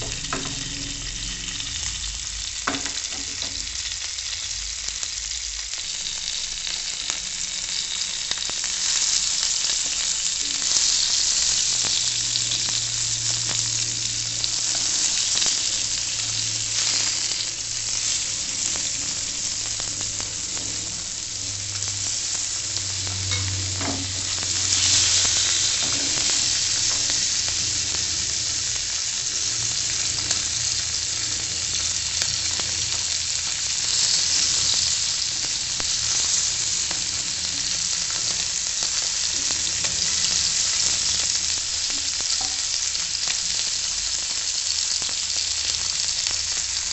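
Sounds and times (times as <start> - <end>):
fish sizzling in oil: 0.0 - 46.9.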